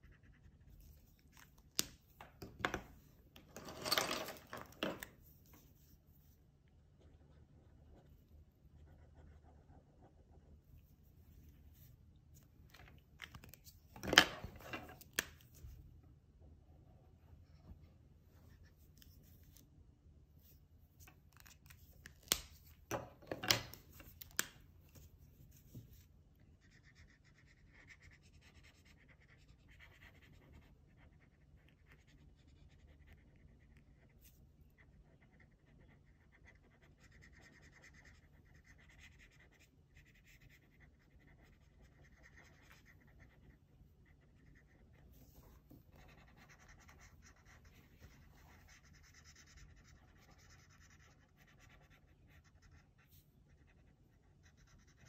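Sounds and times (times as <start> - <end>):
marker scratching on paper: 0.0 - 1.1, 8.8 - 10.5, 25.6 - 55.0.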